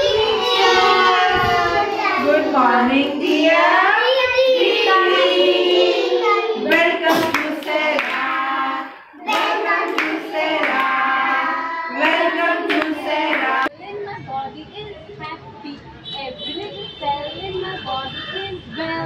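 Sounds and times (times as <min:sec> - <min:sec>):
young children singing in chorus: 0:00.0 - 0:13.7
hand claps: 0:09.3 - 0:11.0.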